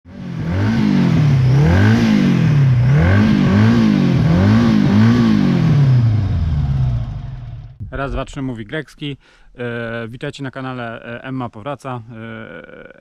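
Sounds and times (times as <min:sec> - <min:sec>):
motorcycle engine revving: 0:00.1 - 0:07.9.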